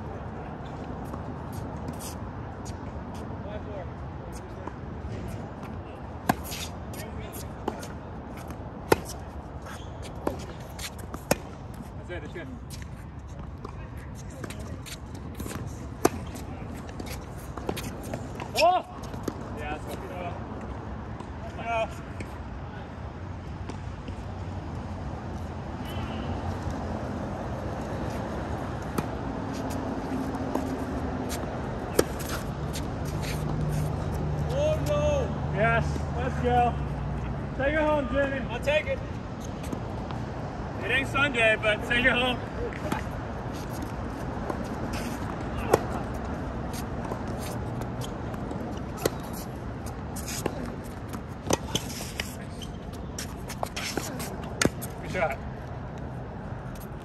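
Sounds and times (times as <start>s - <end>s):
road traffic hum: 0.0s - 57.0s
tennis ball hit by racket: 28.8s - 33.9s, 44.5s - 46.1s, 50.1s - 52.4s, 53.2s - 54.9s.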